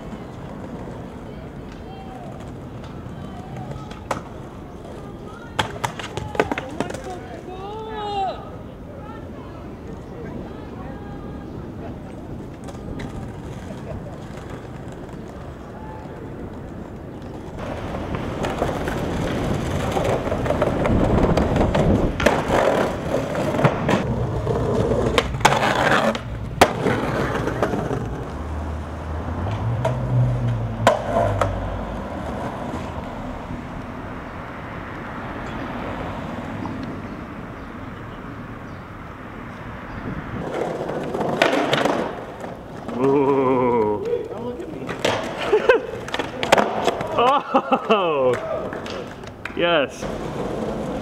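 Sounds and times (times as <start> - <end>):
skateboard clacks: 0.0 - 7.9, 11.9 - 28.5, 29.4 - 33.0, 40.4 - 51.0
skateboard wheels rolling on concrete: 0.0 - 51.0.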